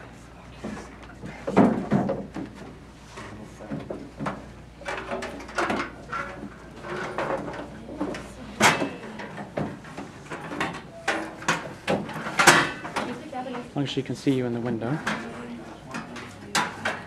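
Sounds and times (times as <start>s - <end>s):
metal folding chairs knocking: 3.8s - 13.2s.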